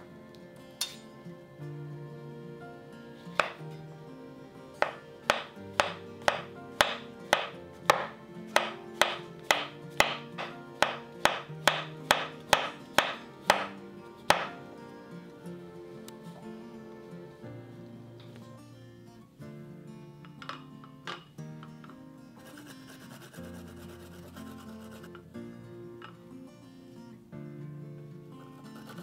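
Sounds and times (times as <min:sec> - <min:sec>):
knife slicing on wooden board: 0:03.4 - 0:03.6, 0:04.8 - 0:13.7.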